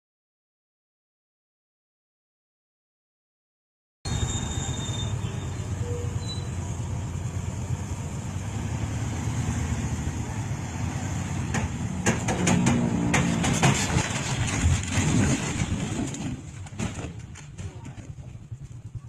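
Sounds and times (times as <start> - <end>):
truck engine rumbling: 4.1 - 19.0
sharp knocks: 11.4 - 15.6.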